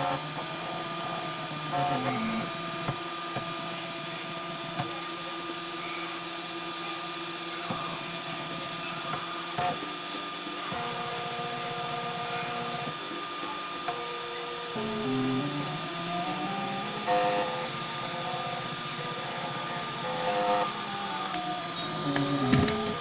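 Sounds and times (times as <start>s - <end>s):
stepper motors whining: 0.0s - 6.4s, 7.5s - 23.0s
constant high-pitched tone: 0.0s - 23.0s.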